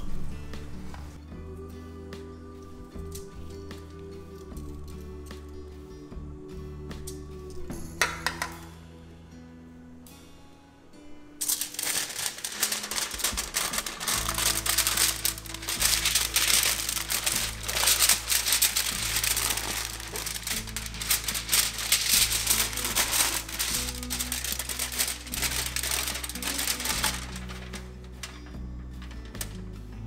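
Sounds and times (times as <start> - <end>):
background music: 0.0 - 30.0
aluminium foil crinkling: 11.4 - 29.8.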